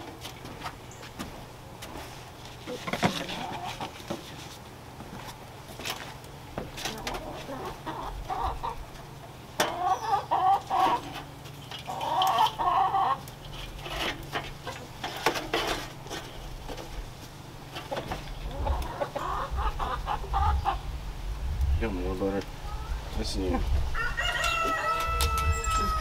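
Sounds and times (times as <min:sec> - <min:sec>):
chickens clucking: 0:02.6 - 0:05.4, 0:06.6 - 0:21.0.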